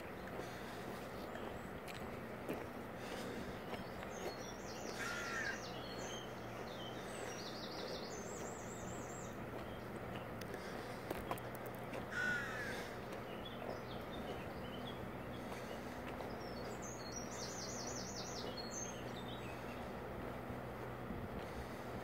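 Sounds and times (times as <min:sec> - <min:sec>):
low outdoor hum: 0:00.0 - 0:22.0
songbird warbling: 0:03.1 - 0:19.9
crow cawing: 0:04.9 - 0:05.6, 0:12.1 - 0:13.0.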